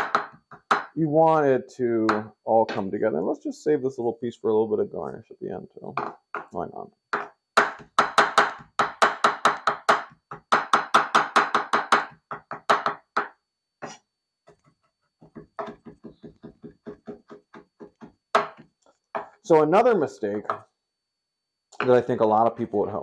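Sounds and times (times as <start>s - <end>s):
knife chopping on cutting board: 0.0s - 0.9s, 7.2s - 14.6s.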